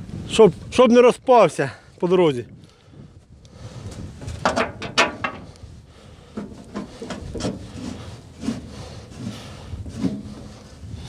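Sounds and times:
knocks and scrapes of machinery: 4.2 - 5.6, 6.3 - 10.9.

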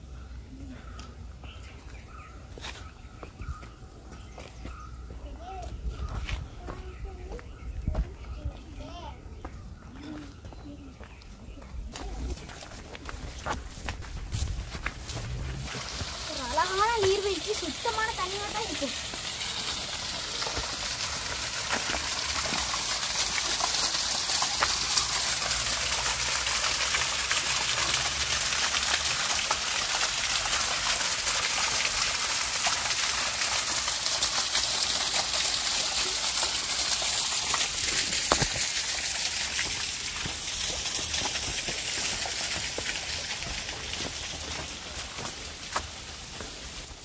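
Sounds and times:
waterfall splashing into pool: 14.8 - 47.0.

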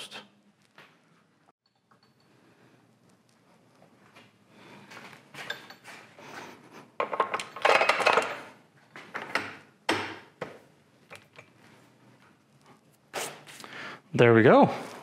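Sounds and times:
metal clinking and knocking: 1.6 - 2.4, 7.0 - 8.5.

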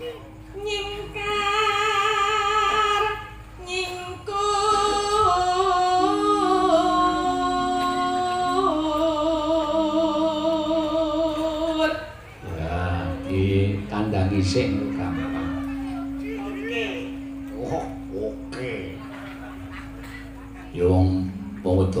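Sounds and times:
woman singing with vibrato: 0.0 - 14.0.

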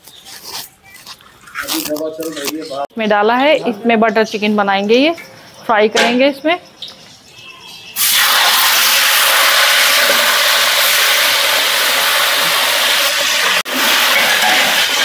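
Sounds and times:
chicken sizzling in hot oil: 8.0 - 15.0.

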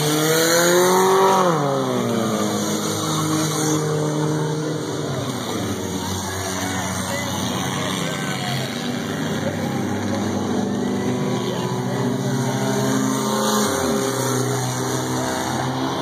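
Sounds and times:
race car engines running: 0.0 - 16.0.

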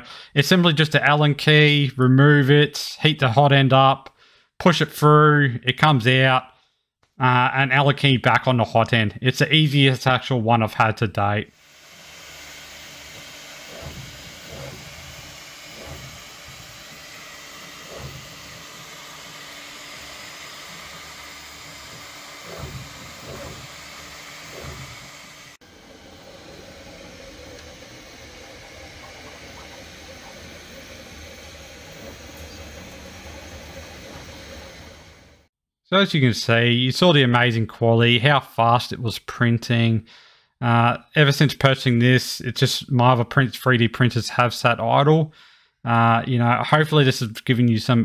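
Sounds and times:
print head motor noise: 11.5 - 35.5
printer fan hiss: 11.5 - 35.5
faint steady hum: 17.6 - 35.4.

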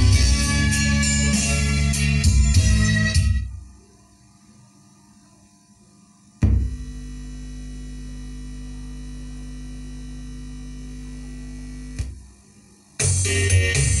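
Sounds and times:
amplifier mains hum: 0.0 - 14.0
speaker pop: 6.4 - 7.4, 11.9 - 12.4.

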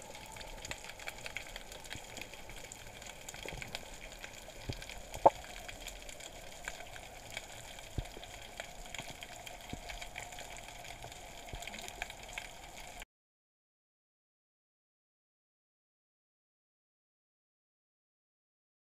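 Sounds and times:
clicks and crackles: 0.0 - 13.0.

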